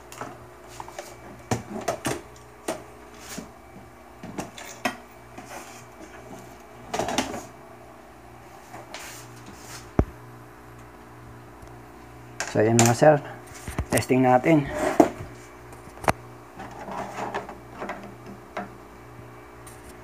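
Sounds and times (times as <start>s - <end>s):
steady low hum: 0.0s - 20.0s
scraping rustle: 16.6s - 17.5s.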